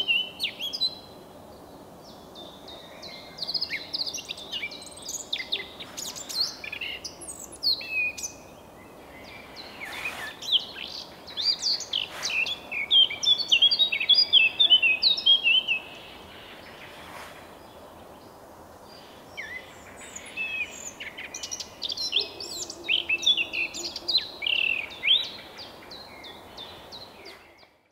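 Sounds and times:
bird rapid warbling: 0:09.7 - 0:13.2.

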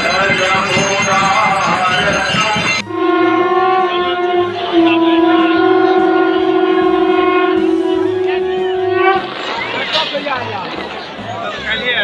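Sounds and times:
conch shell blown: 0:02.8 - 0:09.5.

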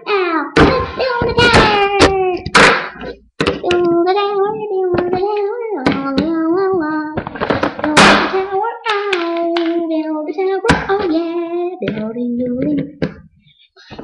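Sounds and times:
boy humming and singing: 0:03.6 - 0:13.2.

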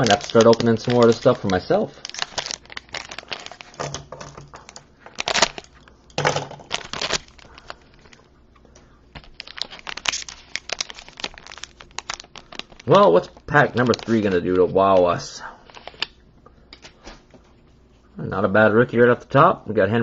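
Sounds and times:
plastic wrapper crinkling: 0:00.0 - 0:08.3, 0:09.1 - 0:16.2.

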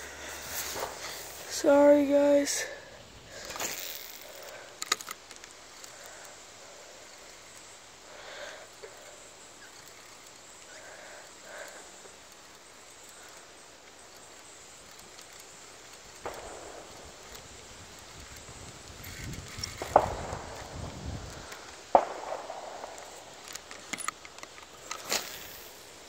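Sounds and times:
faint brushing sounds: 0:00.0 - 0:02.8
steady soft hiss: 0:00.0 - 0:26.0
sharp clicks: 0:03.3 - 0:06.4, 0:11.6 - 0:25.8.

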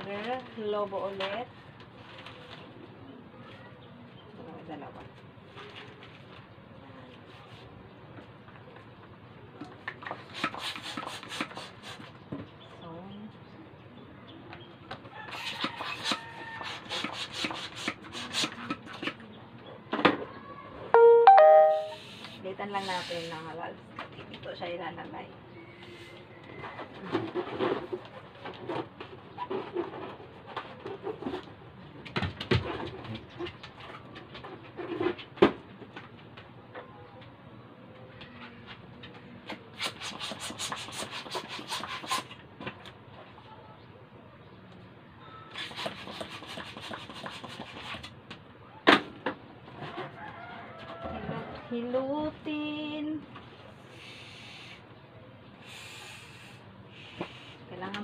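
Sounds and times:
hand balloon pump strokes: 0:10.0 - 0:12.1, 0:15.3 - 0:19.1, 0:39.8 - 0:42.4, 0:45.5 - 0:48.1.

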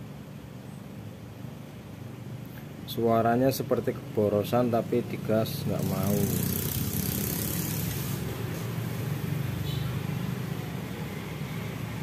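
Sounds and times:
small engine idling: 0:05.7 - 0:09.0.

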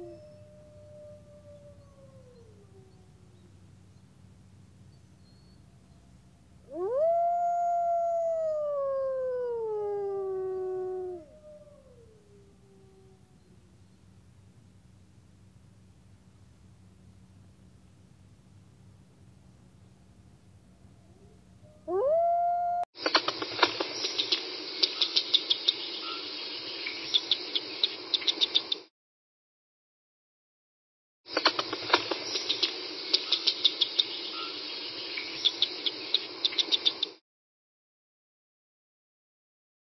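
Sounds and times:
fainter second wolf howl: 0:00.0 - 0:03.5, 0:06.7 - 0:13.9, 0:21.1 - 0:22.9
wolf howling: 0:00.0 - 0:03.5, 0:06.7 - 0:13.6, 0:21.1 - 0:22.9
steady hiss: 0:23.0 - 0:28.8, 0:31.3 - 0:37.2.

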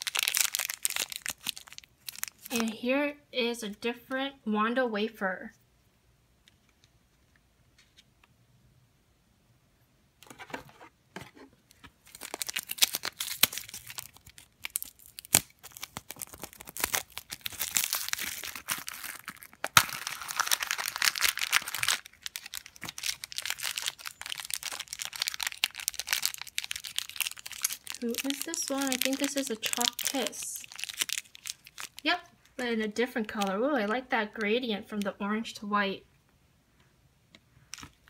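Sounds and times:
plastic wrapping crinkling and tearing: 0:00.0 - 0:02.8, 0:11.7 - 0:34.0.

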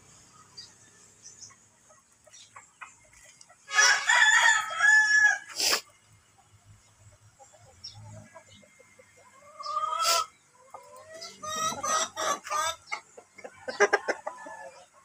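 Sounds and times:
hens clucking: 0:00.2 - 0:04.2, 0:05.4 - 0:15.0
rooster crowing: 0:03.7 - 0:05.5.

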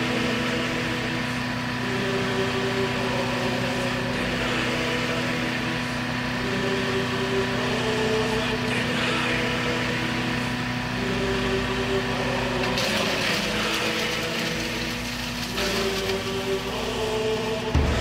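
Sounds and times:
small gasoline engine running: 0:00.0 - 0:18.0.

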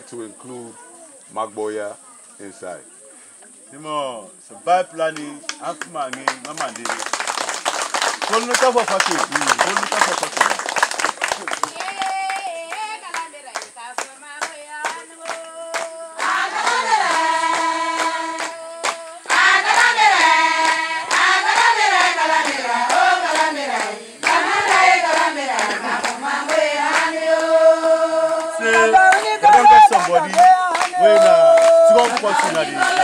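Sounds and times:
hand-clapping: 0:05.1 - 0:33.0
group of voices singing: 0:14.7 - 0:33.0.

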